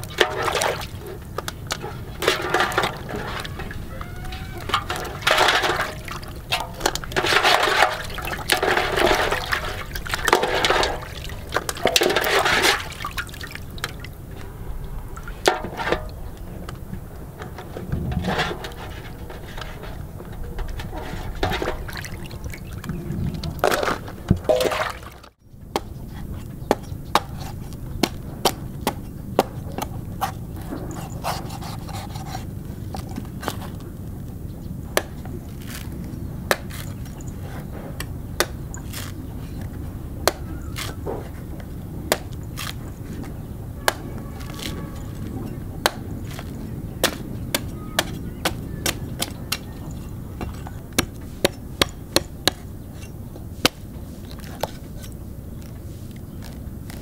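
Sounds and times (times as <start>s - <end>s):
splashy handling sounds: 0.0s - 16.3s, 17.6s - 25.4s
cleaver chopping coconut husk: 25.7s - 57.0s.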